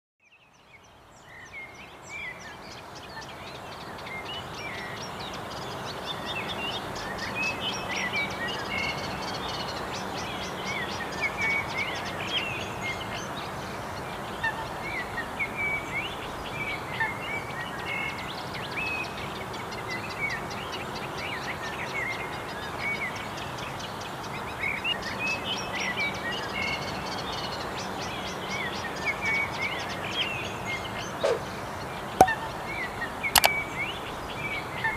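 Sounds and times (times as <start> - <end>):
small birds chirping: 18.0 - 34.9.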